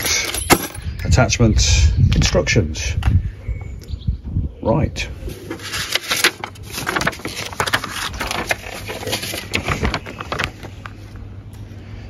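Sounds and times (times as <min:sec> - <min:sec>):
paper rustling and crinkling: 0:05.3 - 0:11.2.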